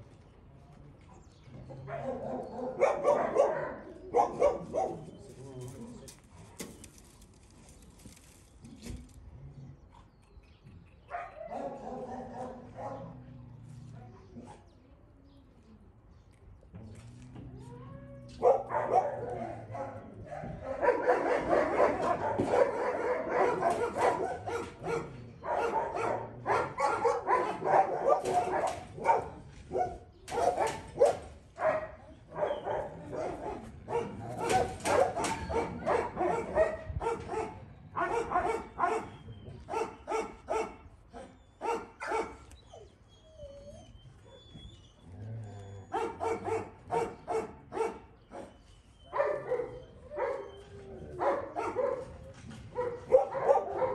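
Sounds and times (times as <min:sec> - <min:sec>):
dogs barking: 0:01.7 - 0:05.2, 0:11.1 - 0:13.4, 0:18.3 - 0:42.8, 0:45.8 - 0:53.9.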